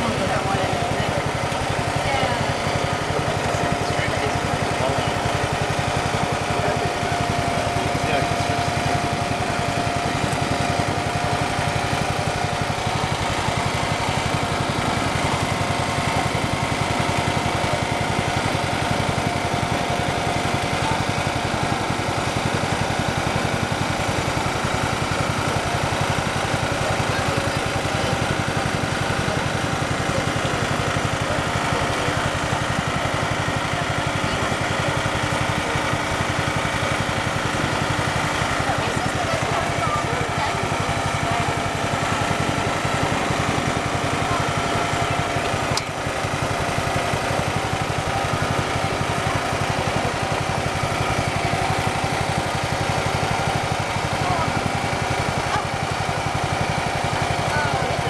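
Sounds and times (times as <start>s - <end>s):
small engine puttering: 0.0s - 58.0s.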